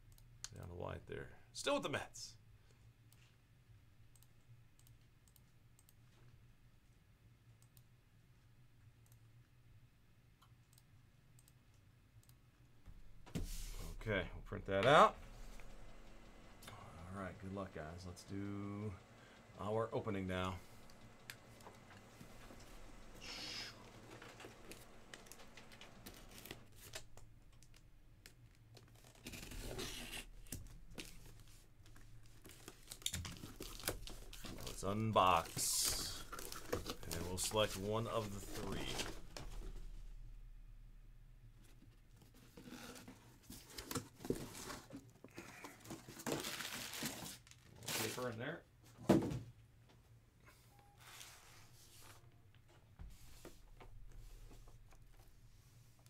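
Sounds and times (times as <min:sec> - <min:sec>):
low electrical hum: 0:00.0 - 0:56.0
computer mouse clicks: 0:04.1 - 0:06.0
packing tape tearing: 0:27.7 - 0:34.8, 0:35.4 - 0:39.2, 0:45.4 - 0:48.3.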